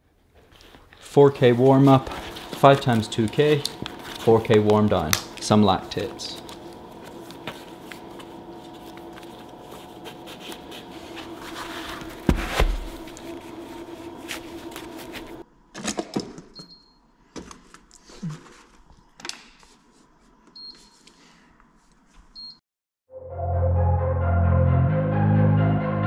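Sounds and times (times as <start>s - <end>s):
rustling and handling noises: 0.1s - 15.4s
steady hum: 1.0s - 15.4s.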